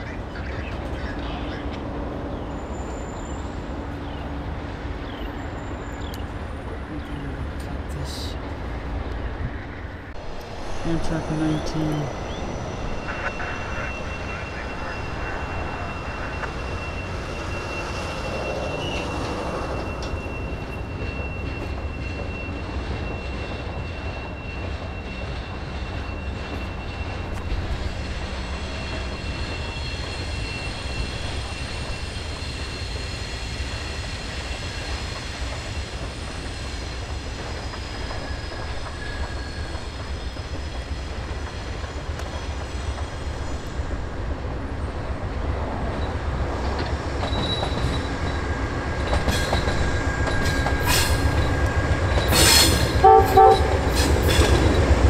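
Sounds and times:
train wheels squealing: 0.0s - 6.9s, 10.5s - 44.2s, 45.7s - 55.0s
train rumbling past: 0.0s - 55.0s.

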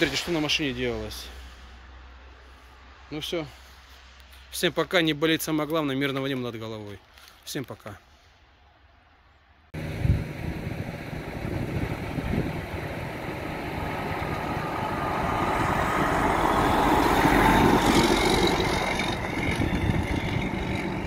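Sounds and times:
truck engine driving past: 9.8s - 21.0s.

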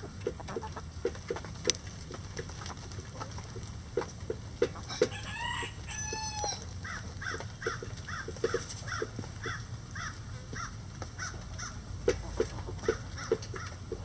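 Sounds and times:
rooster crowing: 4.9s - 7.0s.

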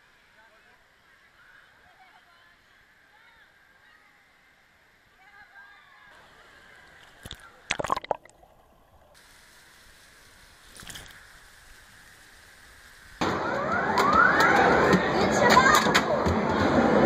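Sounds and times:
water splashing: 6.2s - 13.2s.

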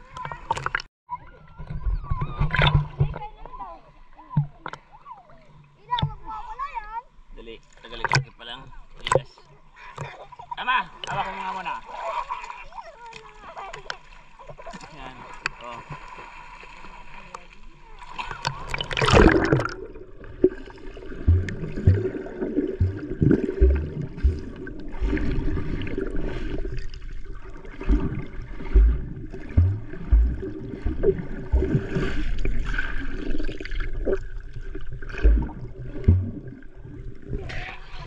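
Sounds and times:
underwater gurgling and swirling: 0.0s - 6.7s, 11.8s - 38.0s
low underwater thumps: 1.5s - 6.4s, 18.3s - 37.7s
splash into water: 11.0s - 37.7s.

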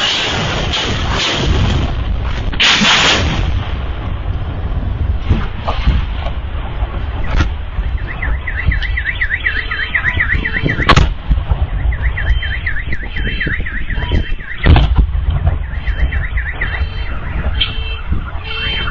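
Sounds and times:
constant low rumble: 0.0s - 18.9s
loud explosion blasts: 0.0s - 18.9s
car alarm chirping wail: 7.2s - 18.9s.

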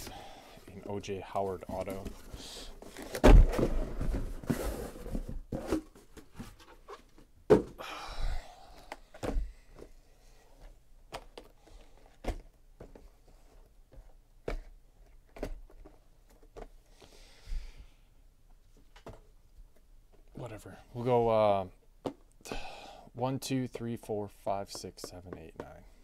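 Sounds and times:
boxes sliding and rustling: 0.0s - 7.3s
cardboard boxes thudding on table: 3.1s - 6.0s, 7.5s - 7.8s.

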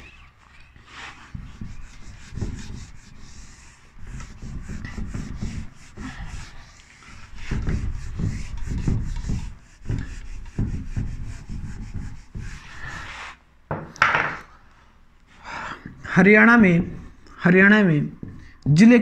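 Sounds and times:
pen scratching on paper: 0.9s - 13.3s.

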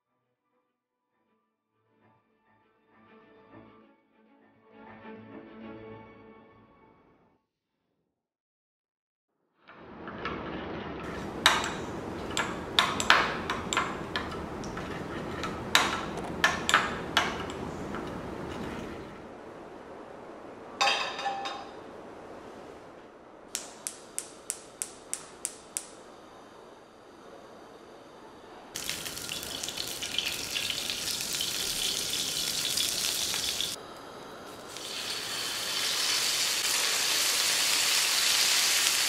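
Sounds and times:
dishes and utensils clinking: 11.0s - 19.1s, 20.8s - 21.8s
steady hiss: 22.4s - 39.0s.

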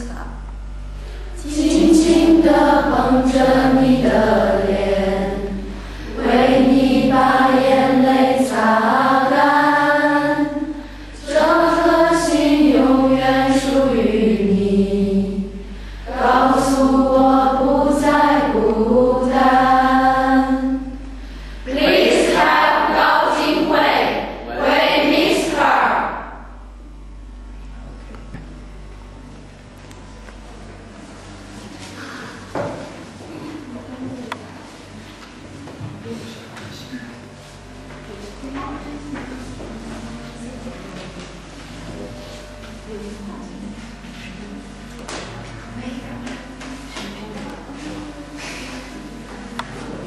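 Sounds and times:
group of voices singing: 1.4s - 26.4s.

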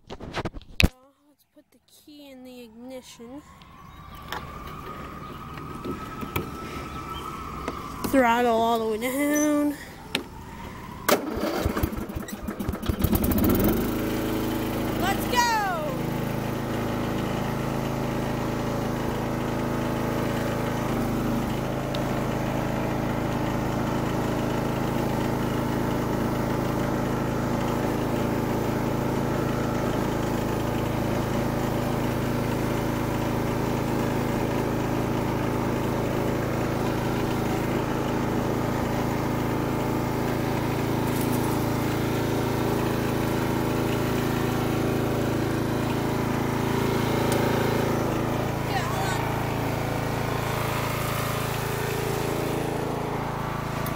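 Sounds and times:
riding mower engine running: 3.5s - 53.9s.

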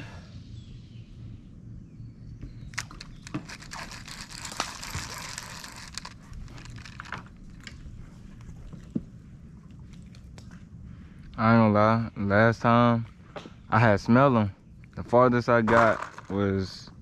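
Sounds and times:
sharp clicks: 2.7s - 7.8s
crinkling rustle: 2.7s - 10.8s.

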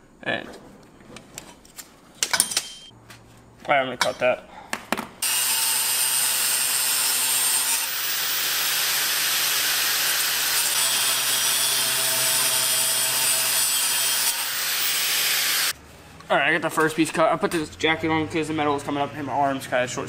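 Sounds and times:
angle grinder cutting metal: 5.2s - 15.7s.

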